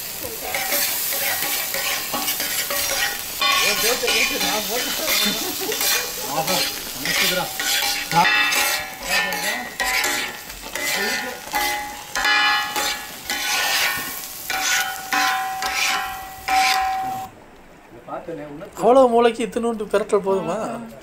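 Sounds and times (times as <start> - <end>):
oil sizzling: 0.0 - 17.3
metal spatula scraping pan: 0.4 - 17.3.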